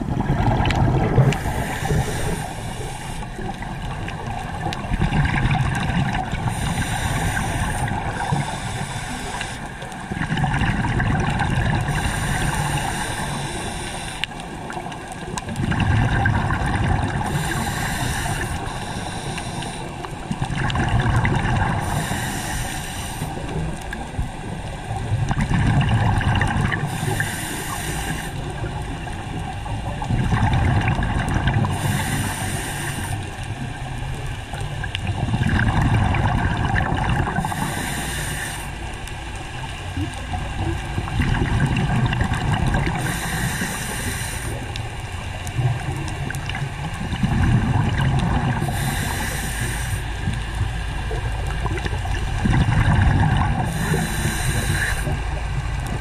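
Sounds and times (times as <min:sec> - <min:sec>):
exhaled bubbles burbling: 0:00.0 - 0:02.6, 0:03.3 - 0:08.7, 0:10.0 - 0:13.4, 0:14.8 - 0:18.5, 0:20.0 - 0:22.0, 0:23.4 - 0:27.3, 0:28.5 - 0:32.3, 0:33.6 - 0:37.8, 0:39.7 - 0:49.5, 0:50.2 - 0:56.0
regulator hissing inhale: 0:01.3 - 0:03.6, 0:06.4 - 0:10.1, 0:11.9 - 0:14.8, 0:17.2 - 0:20.3, 0:21.8 - 0:24.0, 0:26.7 - 0:28.9, 0:31.7 - 0:33.7, 0:37.3 - 0:39.0, 0:42.9 - 0:44.9, 0:48.5 - 0:50.5, 0:53.6 - 0:55.6.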